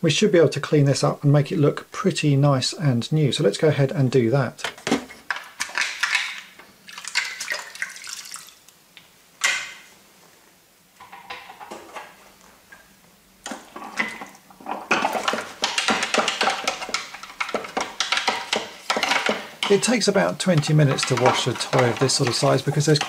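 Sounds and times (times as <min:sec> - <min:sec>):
plastic parts clattering: 0:04.6 - 0:07.8, 0:13.4 - 0:23.0
water splashing: 0:06.9 - 0:08.6.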